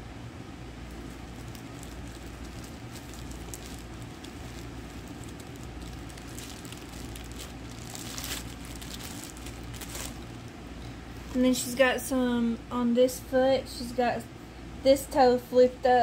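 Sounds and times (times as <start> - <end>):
steady low hum: 0.0 - 16.0
plastic wrap crinkling: 0.9 - 10.6.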